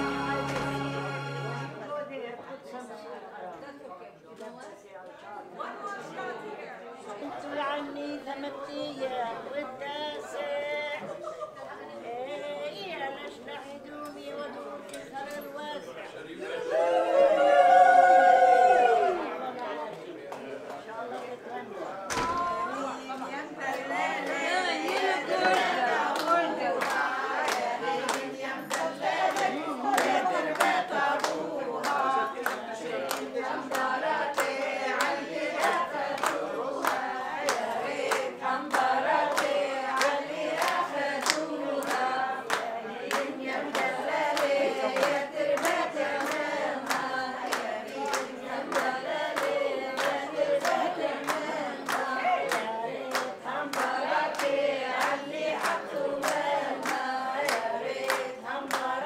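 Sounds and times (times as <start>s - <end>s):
group of people singing: 0.0s - 1.8s, 22.1s - 59.0s
hands clapping: 0.1s - 1.1s, 24.2s - 59.0s.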